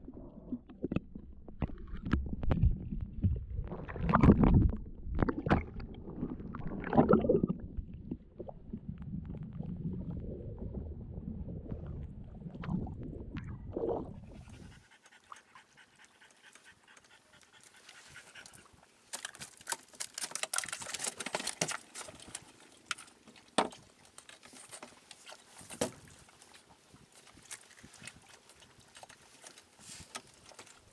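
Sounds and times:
water rushing and sloshing: 0:00.7 - 0:14.8
dog panting: 0:14.2 - 0:18.7
clicks and rustles: 0:19.1 - 0:26.0.

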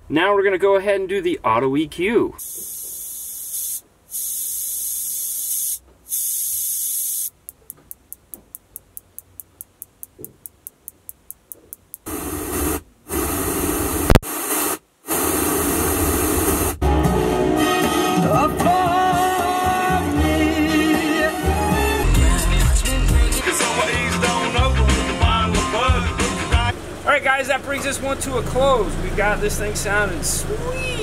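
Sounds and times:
high-pitched hiss bursts: 0:02.4 - 0:07.4, 0:12.0 - 0:16.8.

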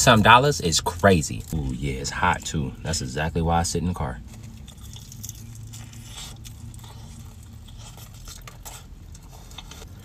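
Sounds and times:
car interior hum: 0:00.0 - 0:10.0
crunchy chewing: 0:04.2 - 0:10.0.

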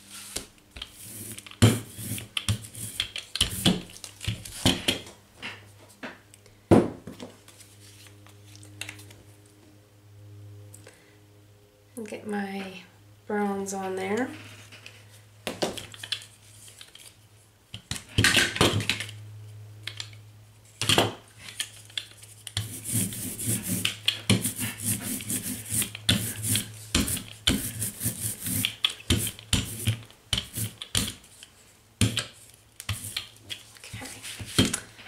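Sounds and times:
brayer rubbing over paper: 0:22.6 - 0:31.1.

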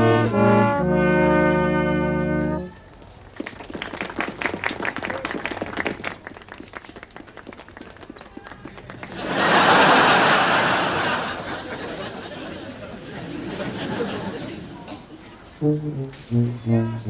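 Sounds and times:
scattered hand clapping: 0:03.3 - 0:09.4
crowd applause: 0:03.4 - 0:14.9.

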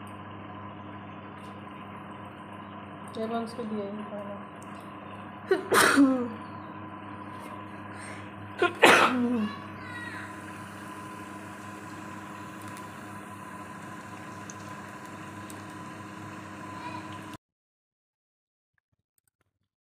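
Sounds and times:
steady hum: 0:00.0 - 0:17.4
batter sizzling in hot oil: 0:09.8 - 0:17.4.

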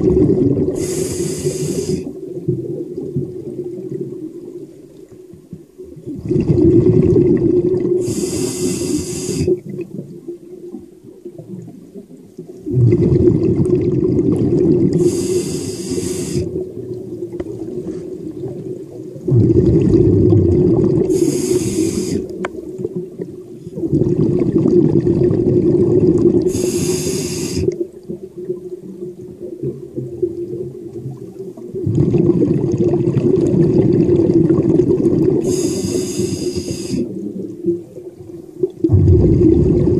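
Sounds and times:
diver breathing underwater: 0:00.1 - 0:02.2, 0:07.7 - 0:09.6, 0:14.6 - 0:16.6, 0:19.4 - 0:22.4, 0:26.1 - 0:27.8, 0:35.3 - 0:37.2.

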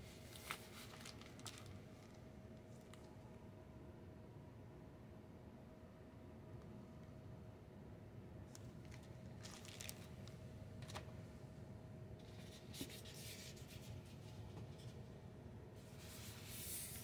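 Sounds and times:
faint steady hum: 0:00.0 - 0:17.0
packaging rustling: 0:00.3 - 0:02.2, 0:08.8 - 0:10.4.

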